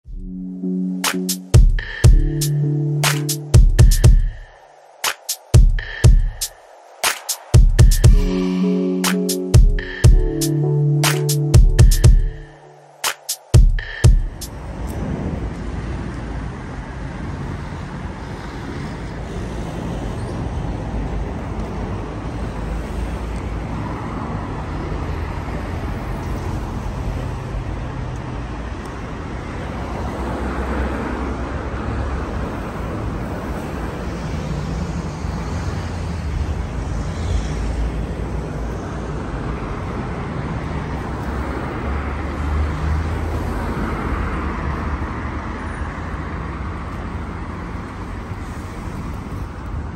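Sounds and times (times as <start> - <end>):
road traffic passing: 0.0 - 49.9.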